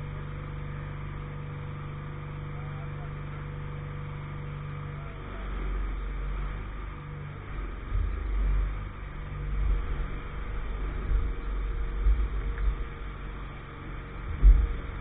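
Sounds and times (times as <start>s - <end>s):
engine rumbling: 0.0s - 15.0s.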